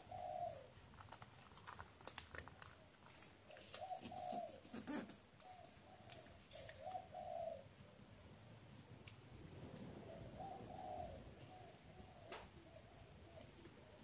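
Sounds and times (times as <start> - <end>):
dove cooing: 0.0 - 0.8, 3.5 - 8.0, 9.8 - 14.0
paper rustling being folded: 0.7 - 6.9.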